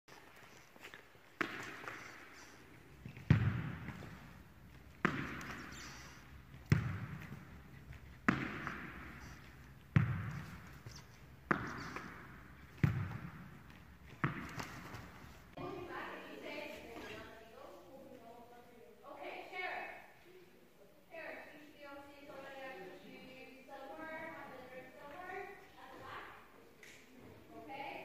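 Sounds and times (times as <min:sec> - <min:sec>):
tennis ball smacking into hand: 0:01.4 - 0:02.3, 0:05.0 - 0:06.0, 0:08.2 - 0:15.2.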